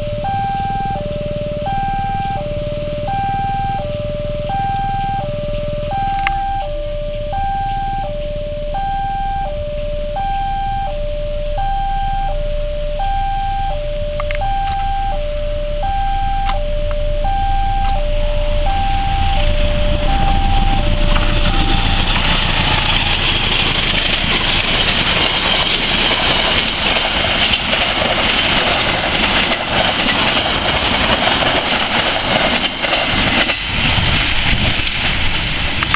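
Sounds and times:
two-tone electronic warning signal: 0:00.0 - 0:23.6
train wheels rumbling on rails: 0:00.0 - 0:35.9.

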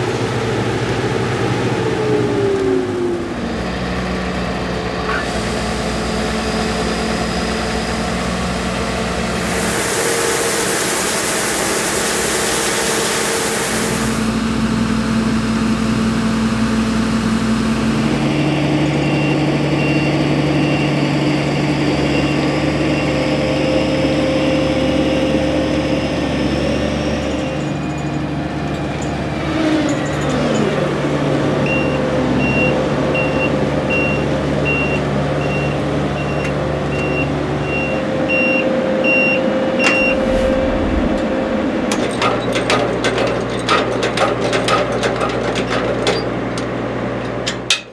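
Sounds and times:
grain pouring into trailer: 0:09.4 - 0:14.2
reversing alarm beeping: 0:31.7 - 0:40.2.

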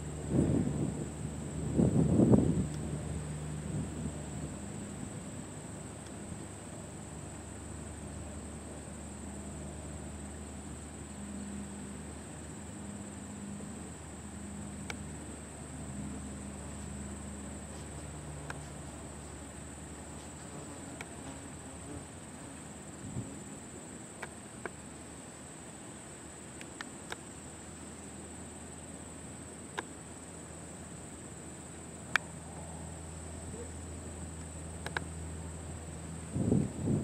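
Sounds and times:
insects trilling: 0:00.0 - 0:37.0
light plane engine drone: 0:00.0 - 0:37.0
sharp clicks: 0:34.8 - 0:35.1.

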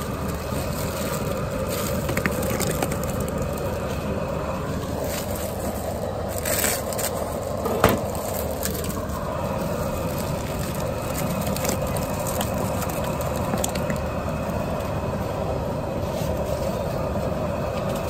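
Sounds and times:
gas burner roaring: 0:00.0 - 0:18.0
water boiling: 0:00.0 - 0:18.0.

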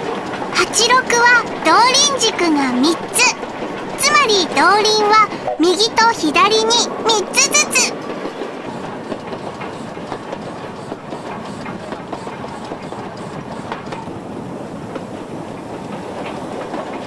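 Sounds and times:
train wheels rumbling: 0:00.0 - 0:17.0
wheels clacking over rails: 0:00.0 - 0:17.0.

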